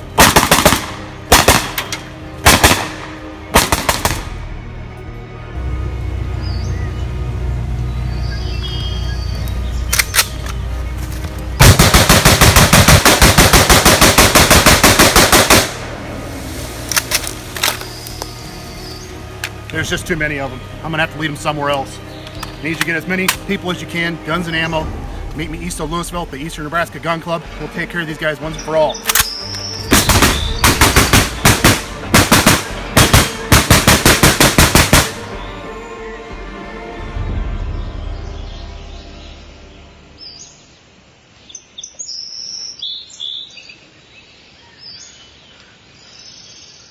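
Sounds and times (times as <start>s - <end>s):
low music drone: 0.0s - 41.2s
rifle rapid fire: 0.2s - 4.3s, 11.6s - 15.9s, 29.9s - 35.3s
sharp clicks: 9.9s - 10.6s, 29.0s - 31.6s.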